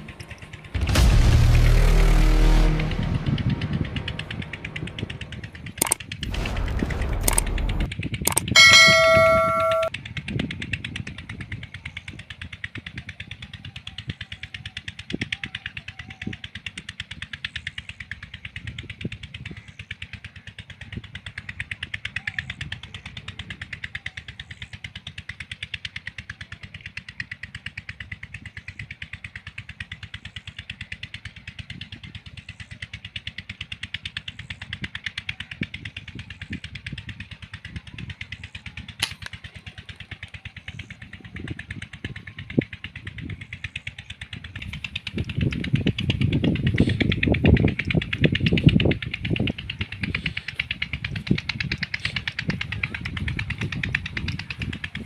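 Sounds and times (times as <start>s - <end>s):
engine chugging: 0.0s - 55.0s
sharp crack: 0.8s - 9.9s.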